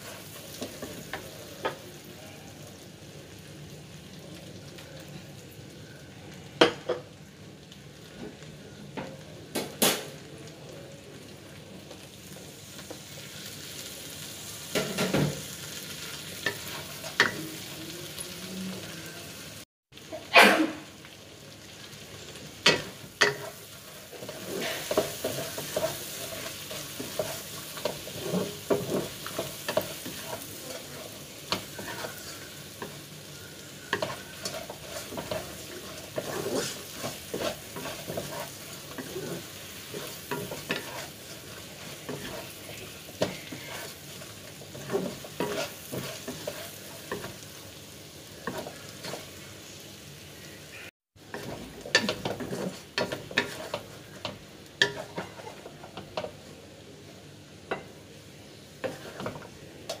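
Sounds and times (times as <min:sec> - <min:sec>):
prawns sizzling in a wok: 0:00.0 - 1:00.0
spatula knocking and scraping pan: 0:14.7 - 0:15.4, 0:22.7 - 0:33.0, 0:33.9 - 0:47.4, 0:51.3 - 0:56.4, 0:58.8 - 1:00.0.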